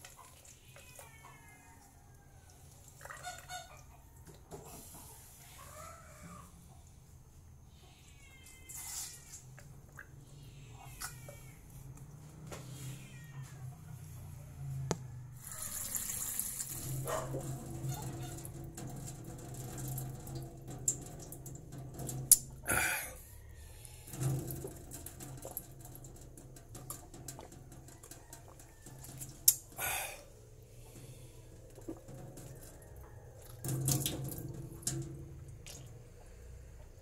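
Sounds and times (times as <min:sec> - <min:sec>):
faint high squeaks: 0:07.7 - 0:09.6, 0:10.3 - 0:14.0, 0:15.4 - 0:20.2
water rushing from tap: 0:15.4 - 0:23.0, 0:33.4 - 0:35.8.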